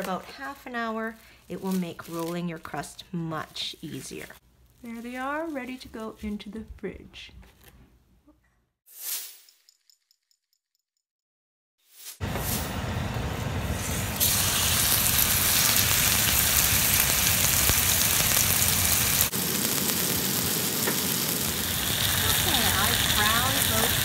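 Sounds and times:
chicken sizzling in oil: 12.4s - 24.0s.

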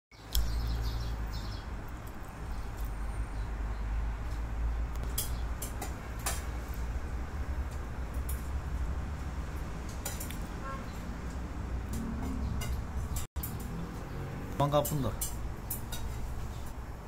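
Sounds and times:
sparrows chirping: 0.1s - 4.0s, 4.7s - 5.6s, 10.6s - 11.1s, 12.2s - 16.9s
city background rumble: 0.1s - 17.0s.

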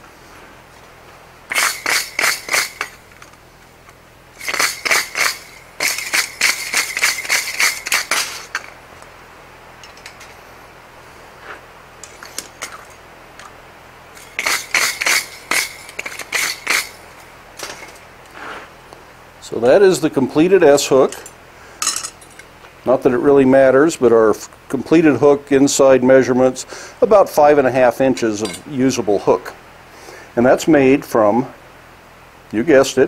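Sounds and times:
wire brush scraping steel anvil: 1.5s - 3.4s, 4.4s - 8.8s, 14.1s - 18.6s.

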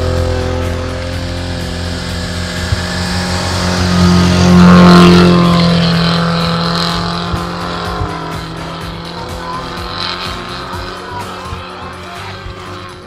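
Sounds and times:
engine revving under load: 0.0s - 13.0s.

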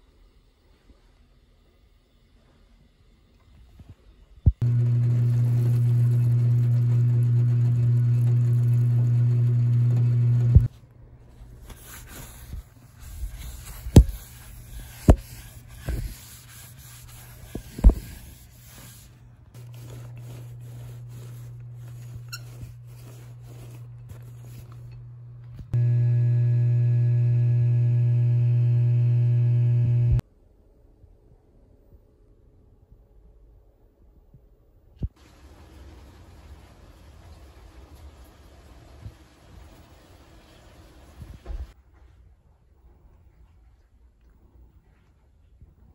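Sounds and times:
small electric motor humming: 4.6s - 10.7s, 25.8s - 30.2s.

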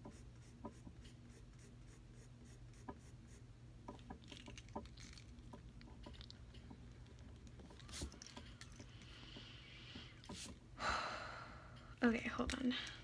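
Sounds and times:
pencil scratching on paper: 0.0s - 3.5s.

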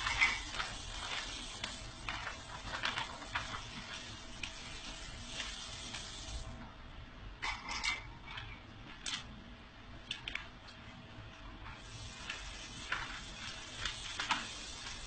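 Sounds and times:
paper pages turning: 0.0s - 6.4s, 11.8s - 15.0s.

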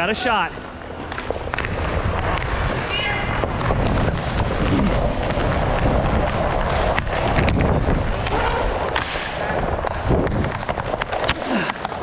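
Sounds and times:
skate wheels rolling on floor: 0.0s - 12.0s
sticks and puck clacking: 0.8s - 12.0s
wind rushing over camera: 1.2s - 11.4s.

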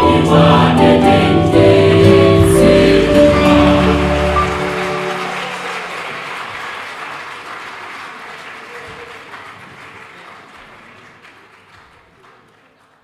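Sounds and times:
choir singing chord: 0.0s - 6.2s
audience applauding: 2.9s - 13.0s.

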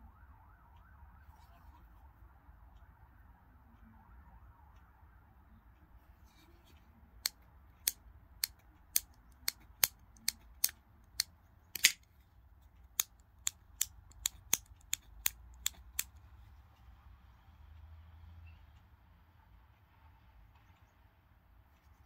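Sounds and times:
folding knife metallic clicks: 7.2s - 12.0s.

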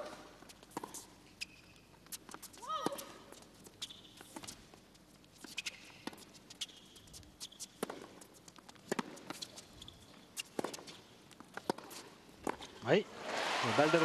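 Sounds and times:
shoe squeaks on court: 0.0s - 4.6s, 5.4s - 8.4s, 9.1s - 14.0s
racket striking tennis ball: 8.9s - 9.4s.

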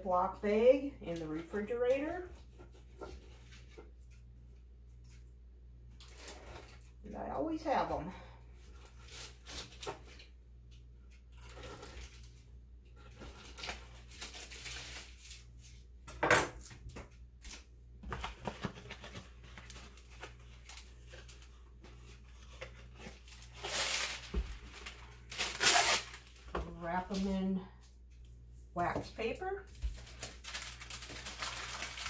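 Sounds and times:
paper rustling: 17.4s - 26.5s, 29.7s - 32.0s.

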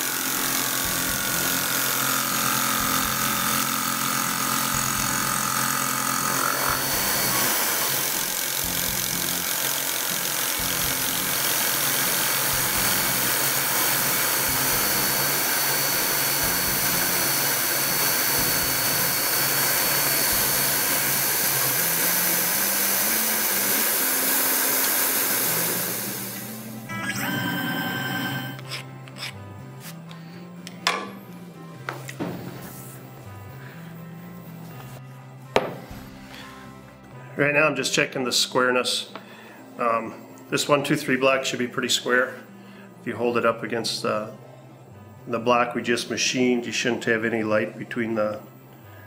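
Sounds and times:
milling machine cutting metal: 0.0s - 28.9s.

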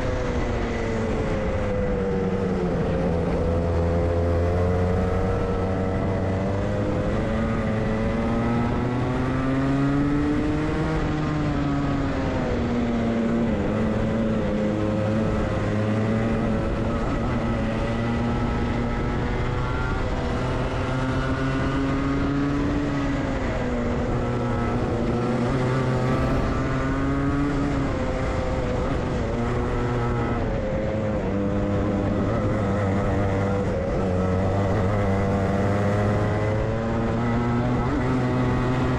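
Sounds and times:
kart engine revving: 0.0s - 38.9s.

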